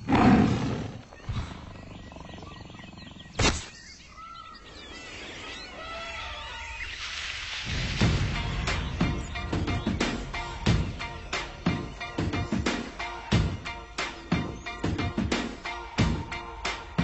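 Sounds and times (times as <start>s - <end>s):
wild animal calls: 0.0s - 4.6s
bird chirping calls: 0.0s - 7.2s, 8.2s - 15.9s
sharp loud crack: 3.4s - 3.8s
steady low rumble: 7.7s - 14.7s.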